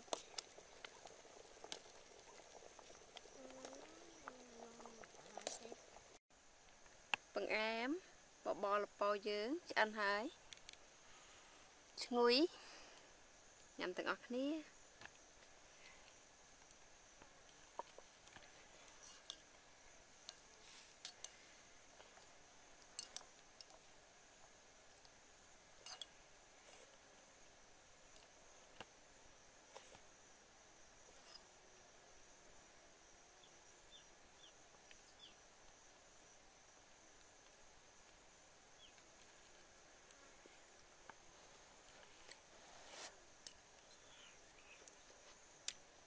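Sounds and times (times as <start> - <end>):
faint voice: 3.4 - 5.8
metal spoon stirring in pot: 25.8 - 26.1.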